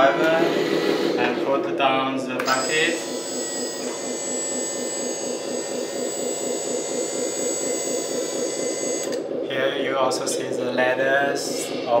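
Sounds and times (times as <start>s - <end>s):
high-pitched whine: 0.0s - 12.0s
simulated diesel engine sound: 0.0s - 12.0s.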